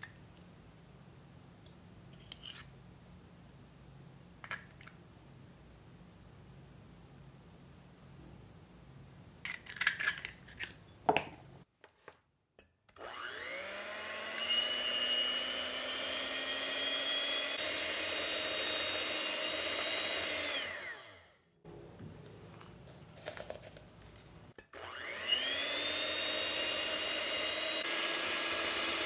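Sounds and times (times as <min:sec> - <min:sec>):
electric hand mixer whining: 0:13.0 - 0:21.4, 0:24.8 - 0:29.0.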